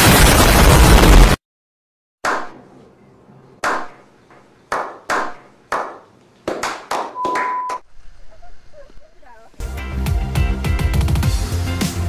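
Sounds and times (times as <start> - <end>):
hand claps with echo: 4.7 - 7.8
short steady beep: 7.2 - 7.8.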